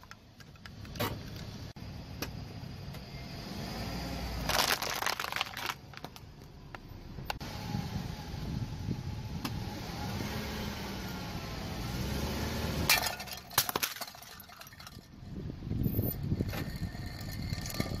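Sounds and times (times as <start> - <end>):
car tyre crushing glass tumblers: 4.4 - 6.3, 12.8 - 15.3
small glass cracks: 4.5 - 6.2, 12.9 - 15.1
low rumble of car creeping: 14.5 - 18.0.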